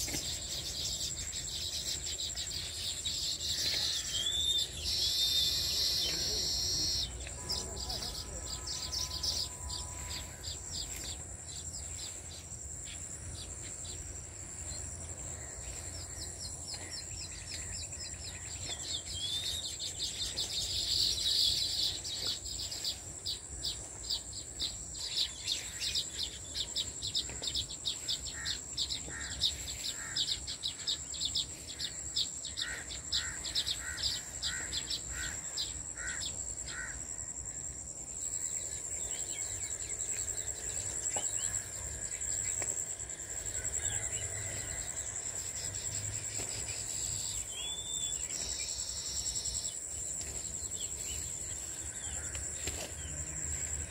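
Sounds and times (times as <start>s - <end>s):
high-pitched insect buzz: 0.0s - 16.4s
small birds chirping: 0.0s - 37.0s, 45.6s - 53.9s
lower bird chirps: 0.0s - 53.9s.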